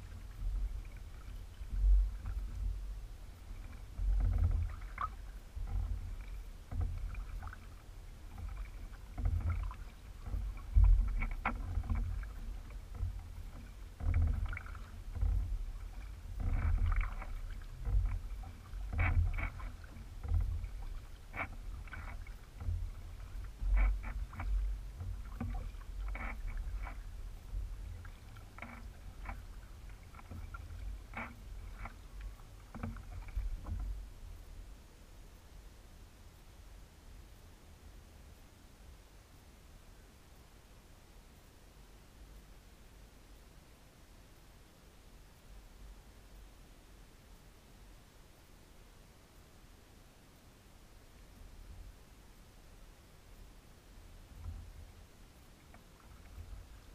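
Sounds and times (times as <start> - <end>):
paddle splashing in water: 0.0 - 34.5, 54.2 - 56.9
low microphone rumble: 0.0 - 38.1.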